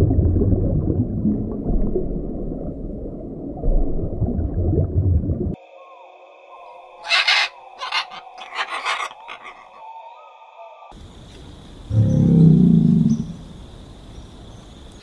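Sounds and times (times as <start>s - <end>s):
macaw squawk: 7.0s - 9.9s.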